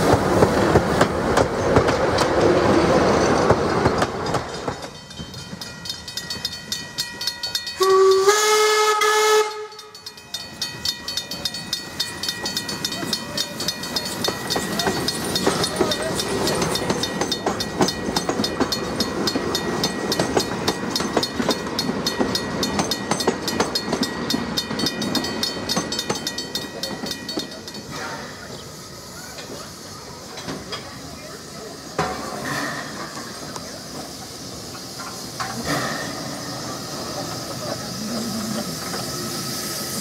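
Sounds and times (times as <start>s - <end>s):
train rumble and wheel clatter: 0.0s - 40.0s
steam whistle: 7.8s - 9.9s.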